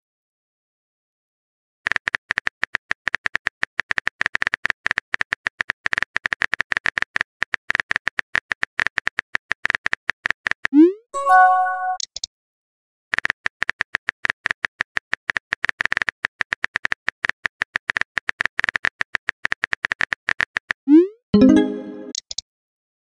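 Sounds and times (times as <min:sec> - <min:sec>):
brief tone: 0:11.2 - 0:12.0.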